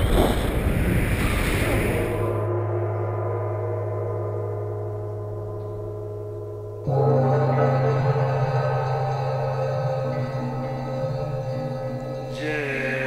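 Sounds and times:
wind on microphone: 0.0s - 2.5s
deep ringing gong: 2.2s - 13.0s.

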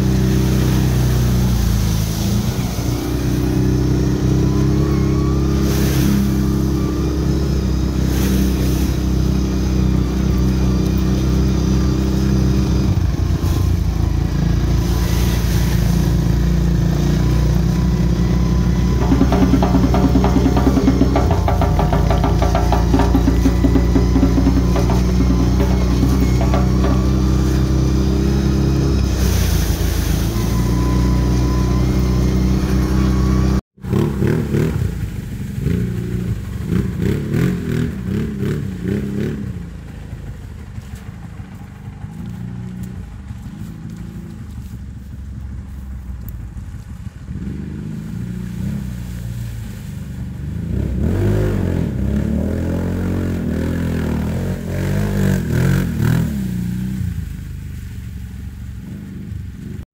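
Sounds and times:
steady droning: 0.0s - 33.6s
off-road vehicle engine revving: 0.0s - 45.8s, 46.5s - 57.9s.

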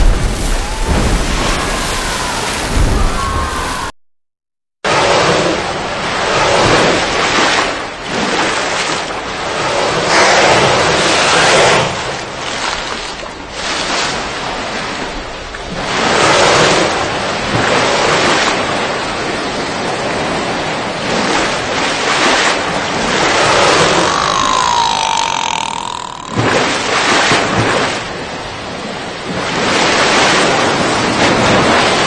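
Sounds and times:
ocean waves surging: 0.0s - 3.9s, 18.0s - 32.0s.

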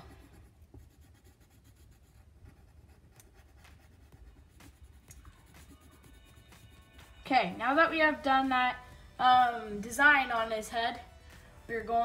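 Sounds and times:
pencil scratching on paper: 0.0s - 7.4s.

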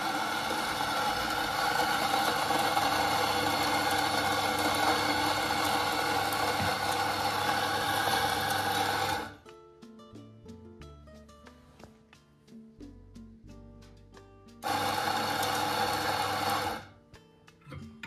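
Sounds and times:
espresso grinder grinding coffee: 0.0s - 9.4s, 14.6s - 16.9s.

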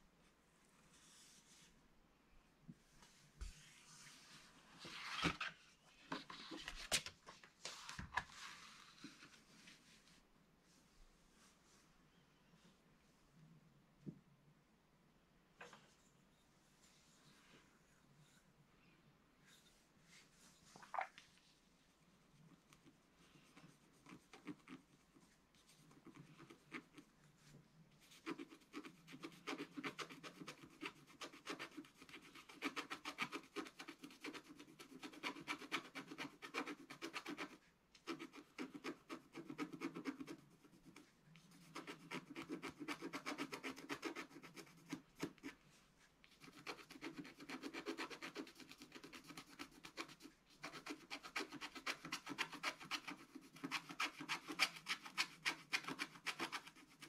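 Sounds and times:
stylus scratching coated sheet: 22.7s - 57.0s.

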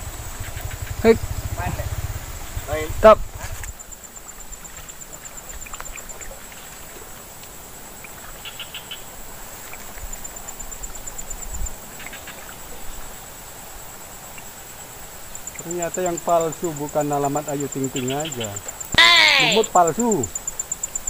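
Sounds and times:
wind rumble on microphone: 0.0s - 3.8s
high-pitched insect whine: 0.0s - 21.0s
short animal chirps: 18.9s - 19.7s.

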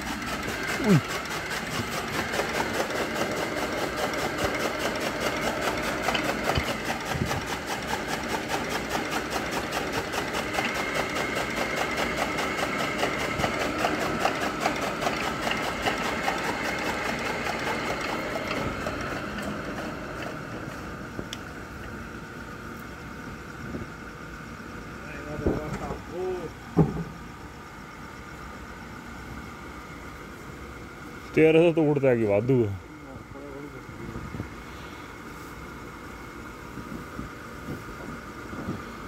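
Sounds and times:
chaff cutter chattering: 0.0s - 20.4s.

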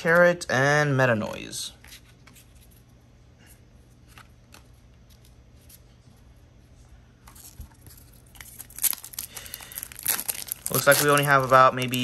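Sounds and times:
low steady hum: 0.0s - 12.0s
cards clicking and rustling: 7.3s - 12.0s.

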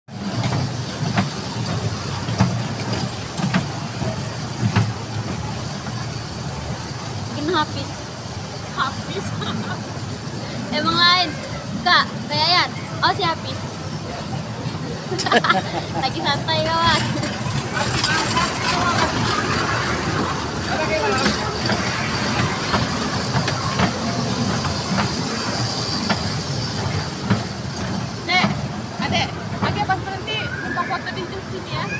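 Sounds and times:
train wheels clacking on track joints: 0.1s - 7.1s, 15.4s - 30.2s
toy train low rumble: 13.6s - 30.7s.

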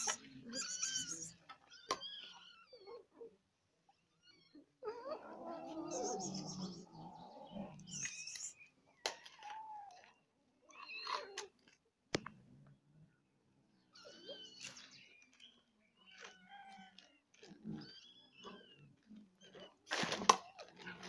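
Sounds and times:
cats growling and yowling: 0.0s - 3.4s, 4.0s - 8.4s, 9.0s - 10.2s, 16.1s - 19.8s.

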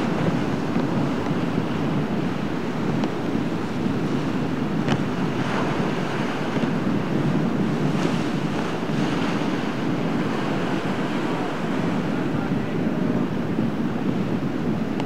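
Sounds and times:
surf breaking and washing: 0.0s - 15.0s
wind buffeting microphone: 0.0s - 15.0s.

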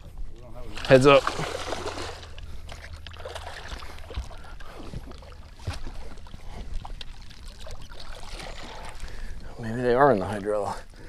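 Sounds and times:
water sloshing: 0.0s - 11.0s
fish splashing at water surface: 0.7s - 9.3s.

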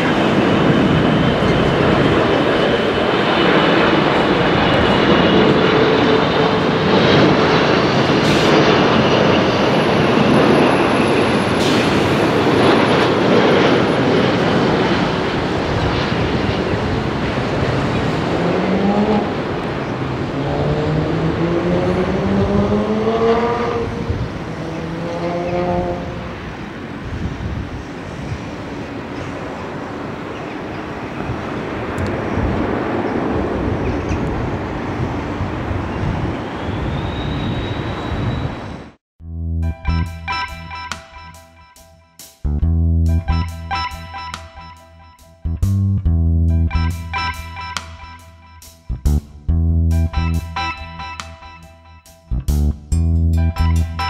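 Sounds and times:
rising engine whines: 0.0s - 27.1s
jet engine noise: 0.0s - 39.0s.

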